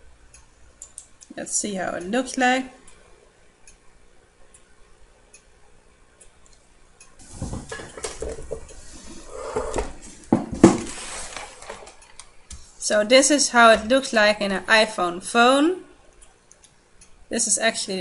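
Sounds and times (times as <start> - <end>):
faint clicks: 0.3 - 1.4, 16.1 - 17.2.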